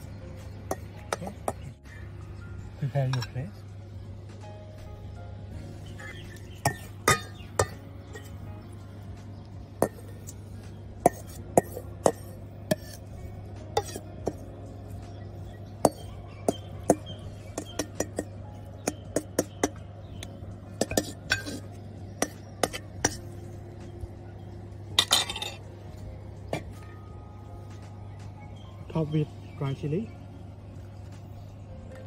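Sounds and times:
metal spoon clinking in metal bowl: 6.0 - 8.3, 11.0 - 13.0, 13.8 - 14.4, 15.8 - 23.3, 24.9 - 25.7.

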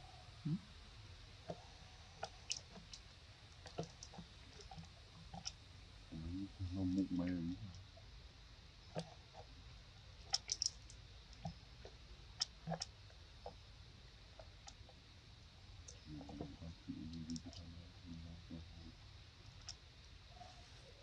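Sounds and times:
faint low murmur: 0.0 - 2.9, 6.1 - 8.1, 15.8 - 21.0.

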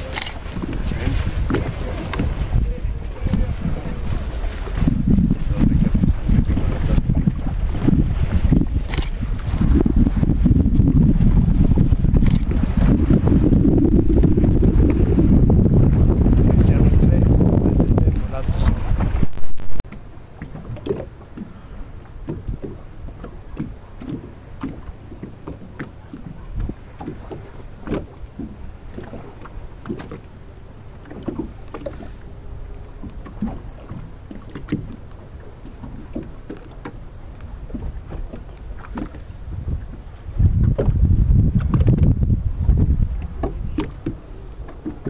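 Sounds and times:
steady low rumble: 0.0 - 20.4
water lapping against hull: 0.0 - 45.0.

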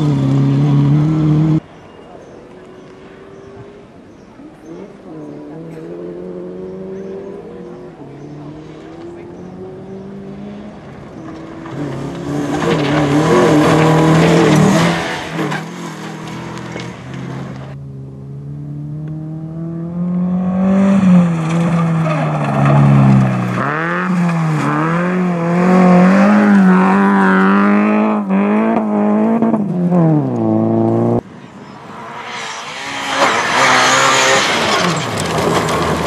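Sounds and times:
rally car engine revving: 0.0 - 1.6, 4.6 - 31.2, 31.8 - 36.0
stones rattling under car: 34.7 - 36.0.

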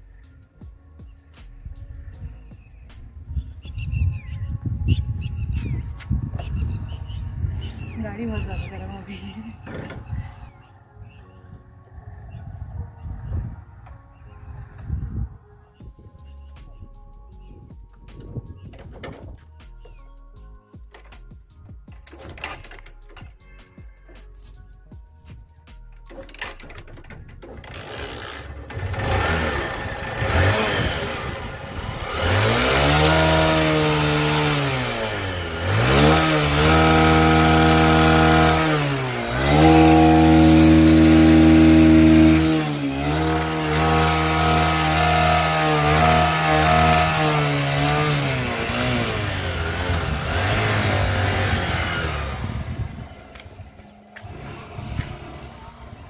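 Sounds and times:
motorcycle engine revving: 26.0 - 56.0.

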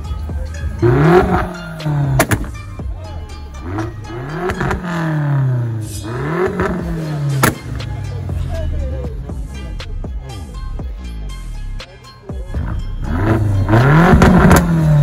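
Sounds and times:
car engine revving: 0.3 - 8.6, 12.6 - 15.0
sharp crack: 2.2 - 2.6, 7.3 - 7.9.

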